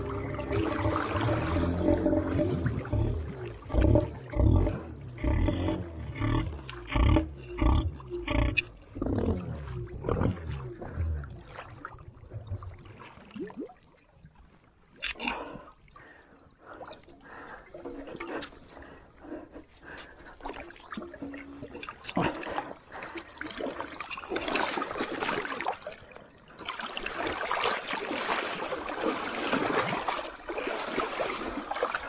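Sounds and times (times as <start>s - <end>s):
engine revving: 0.0s - 11.5s.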